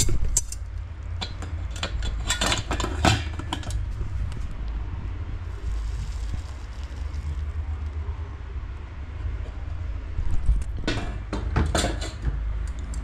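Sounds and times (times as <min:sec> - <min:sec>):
low rumble: 0:03.4 - 0:11.0
handling scrapes and rustles: 0:05.3 - 0:08.0.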